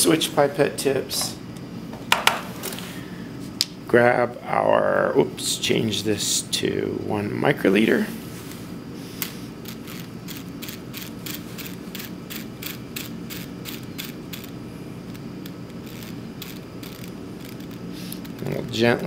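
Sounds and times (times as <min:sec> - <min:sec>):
micropipette dial ratchet clicks: 0:09.9 - 0:14.6, 0:15.4 - 0:18.4.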